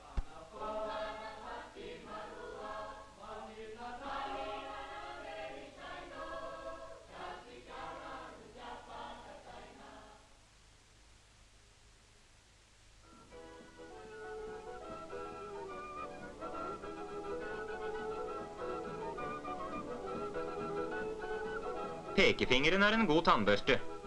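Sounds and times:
choir singing: 0:00.0 - 0:10.3.

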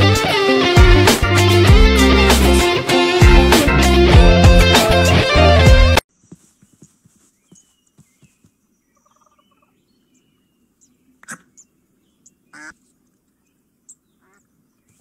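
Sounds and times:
faint waterfowl calls: 0:09.0 - 0:09.8, 0:11.2 - 0:11.6, 0:12.5 - 0:13.0, 0:13.9 - 0:15.0.

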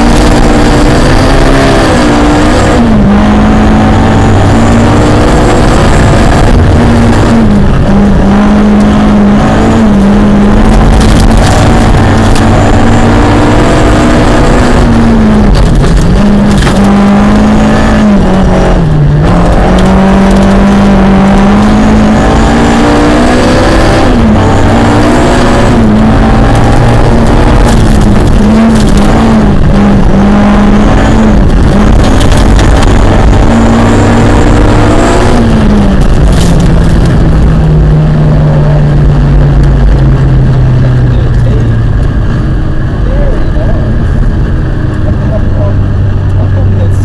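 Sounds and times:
rally car engine revving: 0:00.0 - 0:47.0
gravel rattling against car underside: 0:15.2 - 0:17.0, 0:26.6 - 0:30.2, 0:31.2 - 0:33.6, 0:35.4 - 0:38.0.

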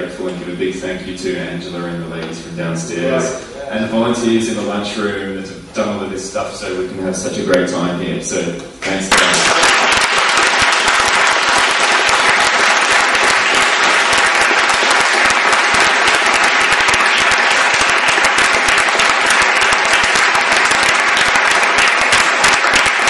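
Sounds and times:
audience applauding: 0:09.1 - 0:23.0.

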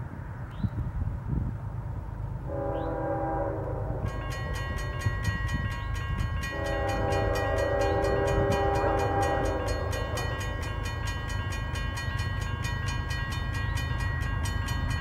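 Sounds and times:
train horn chord: 0:02.5 - 0:05.2, 0:06.4 - 0:10.9
crossing bell ringing rapidly: 0:04.0 - 0:15.0.

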